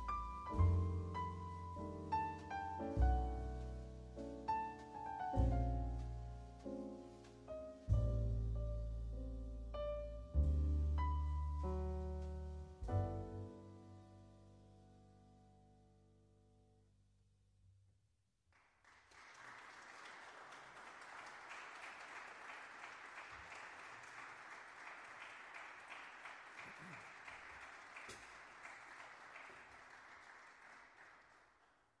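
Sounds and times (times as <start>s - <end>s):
audience applauding: 18.6s - 31.9s.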